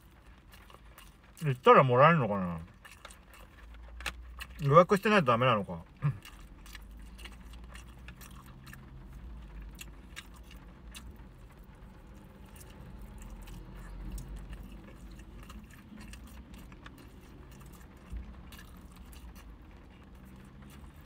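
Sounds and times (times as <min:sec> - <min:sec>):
chewing: 0:00.0 - 0:01.7, 0:02.3 - 0:21.0
low steady hum: 0:00.0 - 0:21.0.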